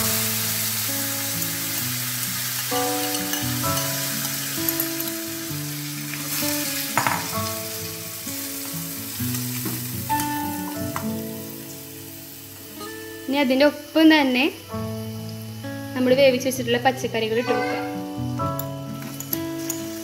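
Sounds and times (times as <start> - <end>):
oil sizzling in a pan: 0.0 - 20.0
soft background music: 0.0 - 20.0
pan clattering: 6.9 - 7.5.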